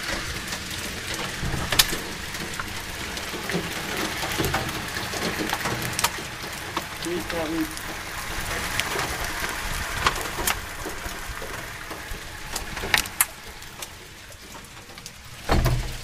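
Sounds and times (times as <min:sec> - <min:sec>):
hail and rain hissing: 0:00.0 - 0:16.0
hailstones clicking on hard surfaces: 0:00.0 - 0:16.0
low thump: 0:15.5 - 0:16.0.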